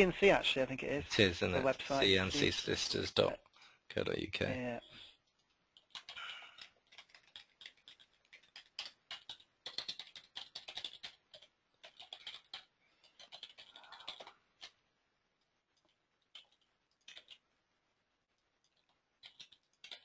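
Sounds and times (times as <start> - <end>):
typing on computer keyboard: 5.2 - 14.8, 15.4 - 17.6, 18.4 - 20.0.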